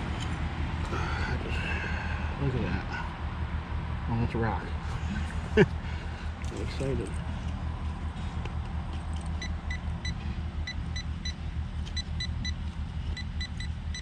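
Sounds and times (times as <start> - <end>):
steady low rumble: 0.0 - 14.0
pinpointer beeping: 9.4 - 12.6, 13.2 - 14.0.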